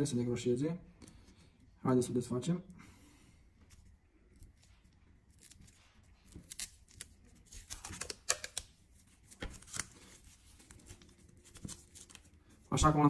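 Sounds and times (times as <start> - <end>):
plastic film crinkling: 4.4 - 12.6.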